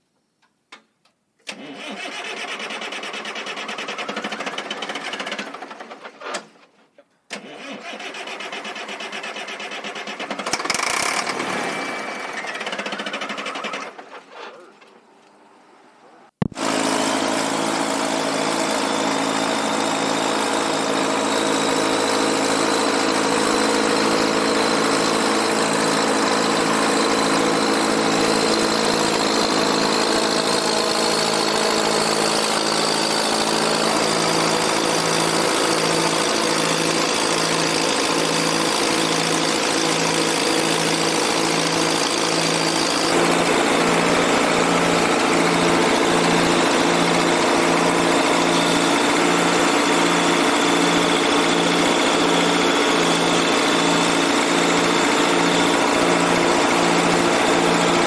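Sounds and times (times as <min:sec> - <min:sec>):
diesel engine cranking and running: 0:01.4 - 0:06.5, 0:07.3 - 0:14.9, 0:16.5 - 0:58.0.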